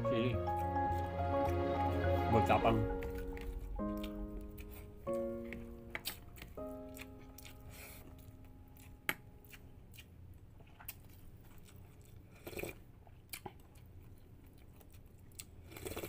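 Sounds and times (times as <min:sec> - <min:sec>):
background music note: 0:00.0 - 0:09.4
person chewing: 0:03.2 - 0:16.0.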